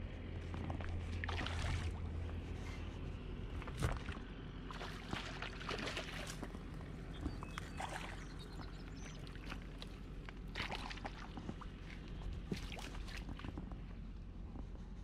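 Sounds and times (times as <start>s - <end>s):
wind rumbling on microphone: 6.3s - 15.0s.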